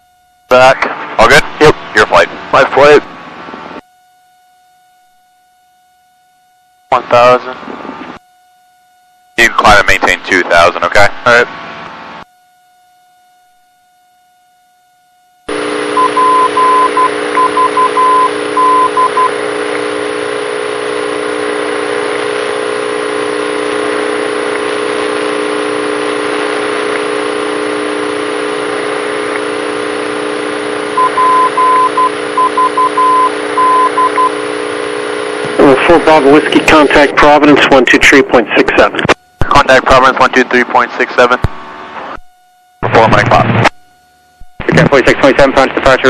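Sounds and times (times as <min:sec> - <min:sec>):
morse code tone: 0:15.5 - 0:30.1, 0:30.8 - 0:37.3.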